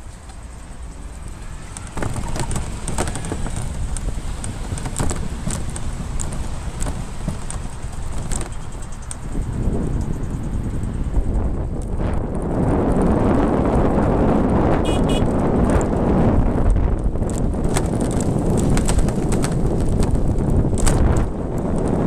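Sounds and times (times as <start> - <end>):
road and wind rumble: 0.0 - 22.0
clicks and knocks from drivetrain: 1.2 - 10.2, 15.2 - 22.0.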